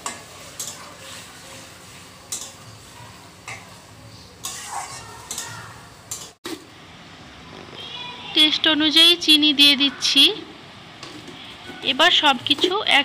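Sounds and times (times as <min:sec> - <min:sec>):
spatula scraping and tapping pan: 0:00.0 - 0:01.6, 0:02.3 - 0:02.6.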